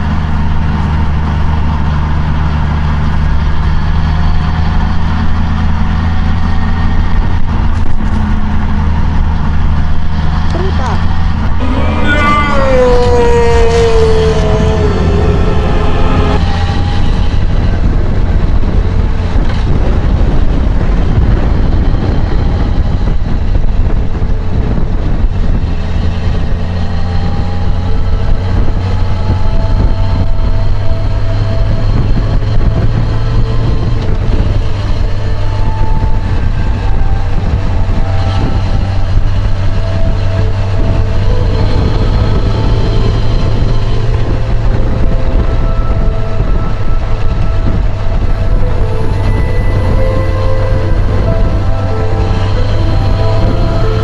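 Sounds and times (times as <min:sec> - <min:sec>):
motorcycle engine running: 0:00.0 - 0:54.0
wind rush on microphone: 0:00.0 - 0:54.0.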